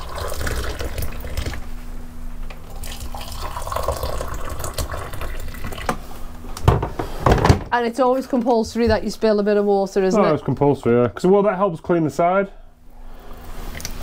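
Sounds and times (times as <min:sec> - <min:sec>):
water pouring into mugs: 0:00.0 - 0:01.6, 0:02.6 - 0:06.0
knocks: 0:06.6 - 0:07.7.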